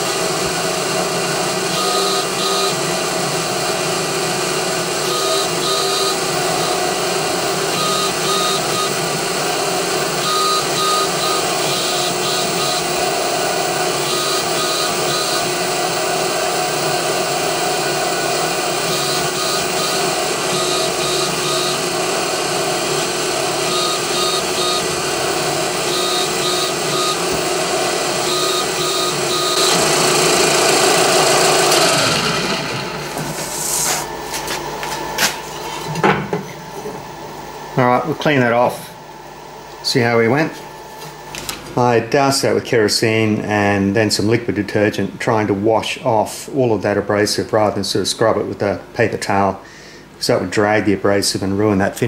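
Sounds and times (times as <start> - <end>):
mill-drill motor running: 0.0 - 35.9
abrasive tool scratching metal: 33.0 - 34.6.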